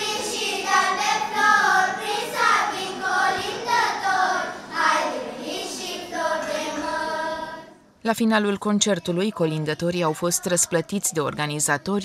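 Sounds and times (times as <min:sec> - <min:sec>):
children's choir singing: 0:00.0 - 0:07.9.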